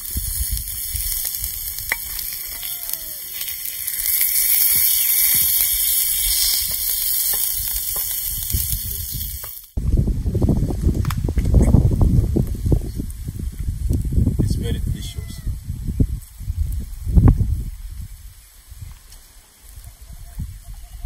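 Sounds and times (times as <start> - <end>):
meat and onions sizzling on stone: 0.0 - 21.0.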